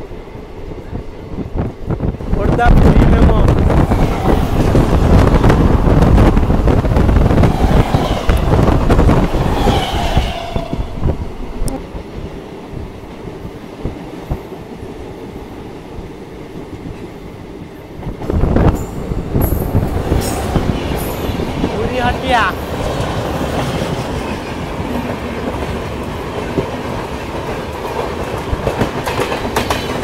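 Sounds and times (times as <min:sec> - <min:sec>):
second train passing alongside: 0:00.0 - 0:30.0
train wheels rumbling on rails: 0:00.0 - 0:30.0
high squeal: 0:07.4 - 0:11.1.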